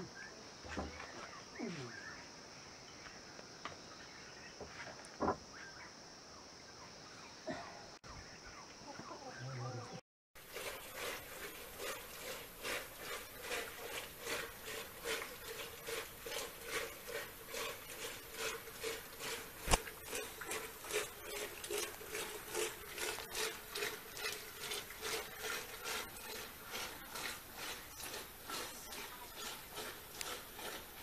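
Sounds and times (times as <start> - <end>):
wooden churn rubbing and swishing: 10.4 - 31.0.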